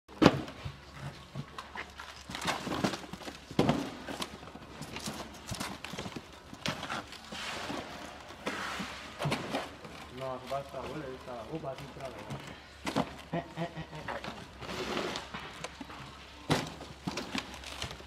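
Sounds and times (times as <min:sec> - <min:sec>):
cardboard boxes rustling: 0:00.1 - 0:18.0.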